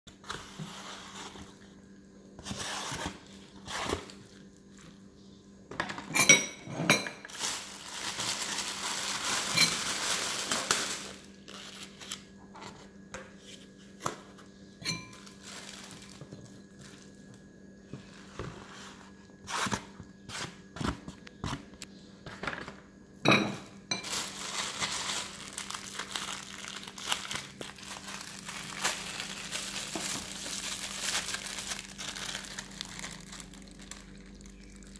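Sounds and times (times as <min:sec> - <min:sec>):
plastic bag crinkling: 0:07.3 - 0:12.3, 0:15.1 - 0:17.2, 0:24.0 - 0:34.9
spoons clinking on ceramic bowls: 0:09.5 - 0:09.9, 0:14.8 - 0:15.3.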